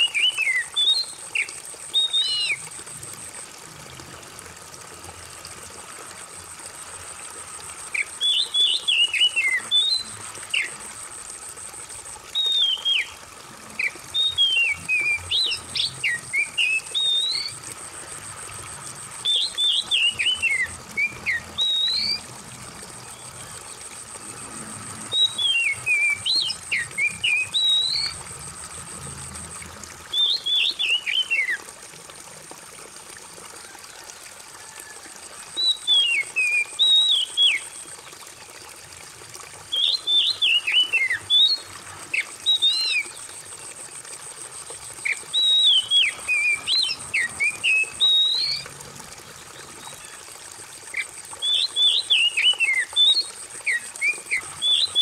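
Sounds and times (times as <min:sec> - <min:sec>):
bird whistling song: 0:00.0 - 0:02.6, 0:08.0 - 0:10.7, 0:12.3 - 0:13.2, 0:13.8 - 0:17.6, 0:19.2 - 0:22.3, 0:25.1 - 0:28.2, 0:30.1 - 0:31.6, 0:35.6 - 0:37.8, 0:39.7 - 0:43.2, 0:45.0 - 0:48.6, 0:51.0 - 0:55.0
trickle of running water: 0:00.0 - 0:55.0.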